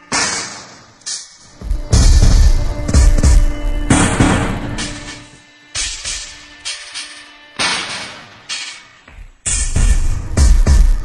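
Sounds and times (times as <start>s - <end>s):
bass-heavy electronic beat: 1.5s - 4.8s, 9.2s - 11.0s.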